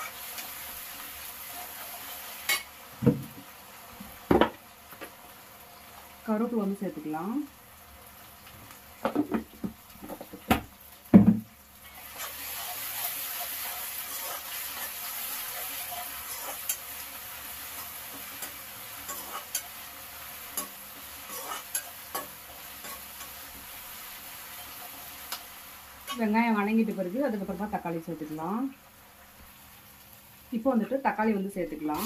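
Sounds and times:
frying sizzle: 0:00.0 - 0:32.0
metal spatula scraping pan: 0:12.0 - 0:16.8, 0:18.2 - 0:19.8, 0:20.5 - 0:23.4.

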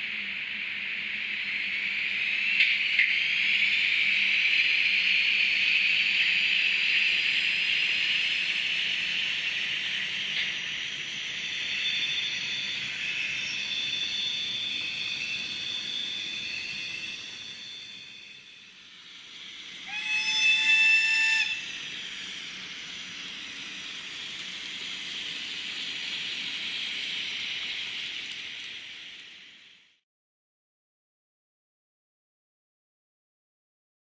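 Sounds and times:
high rising electric whine: 0:00.1 - 0:30.0
shrill wheel flange squealing: 0:19.8 - 0:21.8.

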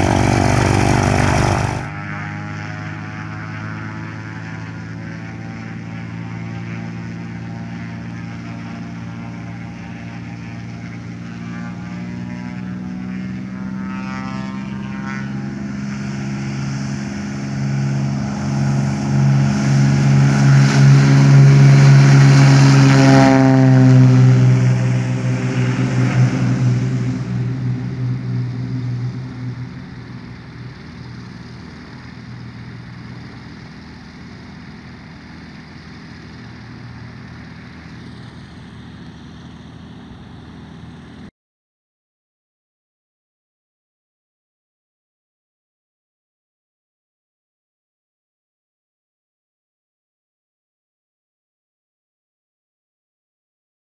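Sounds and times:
propeller plane engine at high power: 0:00.0 - 0:41.3.

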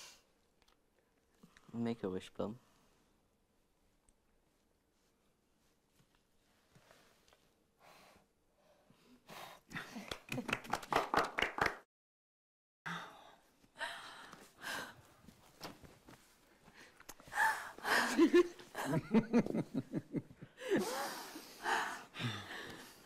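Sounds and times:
person gasping and sighing: 0:20.6 - 0:23.0.

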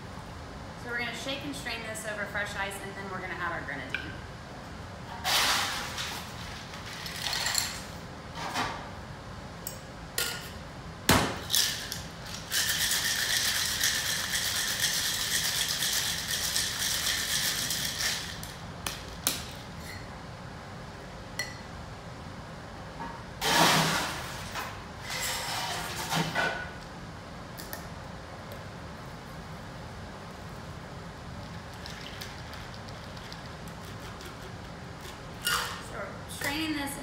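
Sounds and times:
ice rattling in cocktail shaker: 0:11.5 - 0:18.6, 0:31.7 - 0:34.5.

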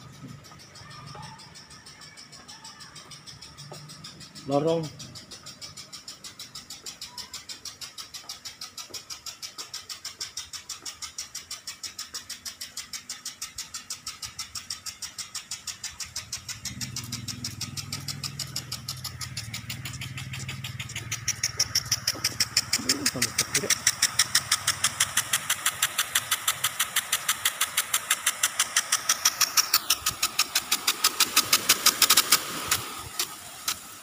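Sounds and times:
impact sprinklers ticking: 0:00.0 - 0:34.0
low engine hum: 0:15.8 - 0:33.8.

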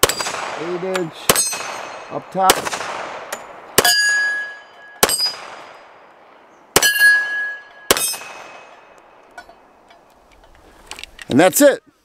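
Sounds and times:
pistol shots: 0:00.0 - 0:06.1, 0:06.7 - 0:08.8
steel targets ringing: 0:01.3 - 0:02.3, 0:03.4 - 0:05.5, 0:06.8 - 0:08.9.

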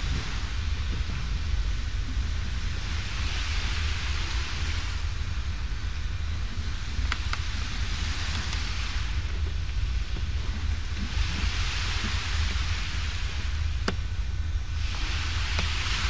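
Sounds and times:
wind buffeting microphone: 0:00.0 - 0:16.0
faint ticks: 0:07.0 - 0:07.6, 0:08.2 - 0:08.7.

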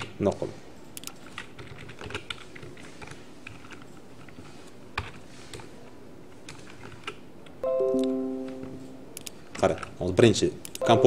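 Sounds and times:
ringing chord: 0:07.6 - 0:09.2.

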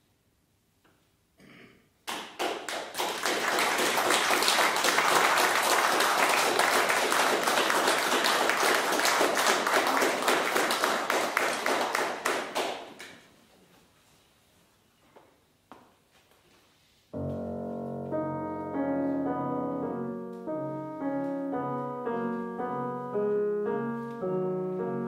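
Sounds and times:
audience applauding: 0:02.1 - 0:13.2.

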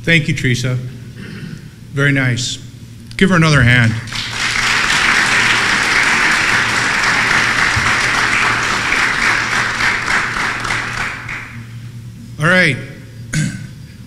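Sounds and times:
audience applauding: 0:04.1 - 0:11.8.

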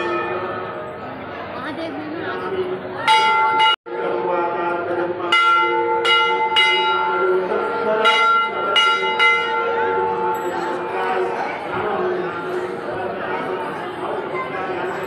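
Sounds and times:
temple bells ringing: 0:00.0 - 0:01.2, 0:03.0 - 0:12.8, 0:14.4 - 0:15.0.

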